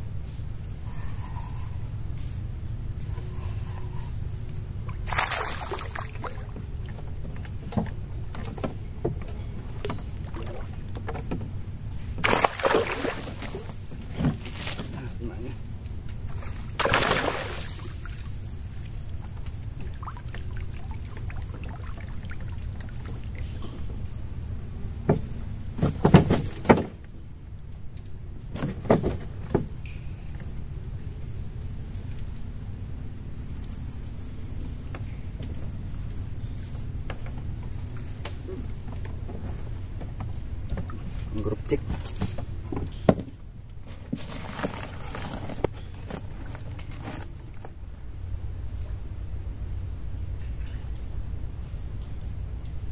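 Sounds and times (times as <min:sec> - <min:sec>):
high-pitched insect trill: 0:00.0 - 0:52.9
knocks and thumps in a boat: 0:05.7 - 0:15.2, 0:19.1 - 0:27.3, 0:28.4 - 0:30.5, 0:36.6 - 0:47.8.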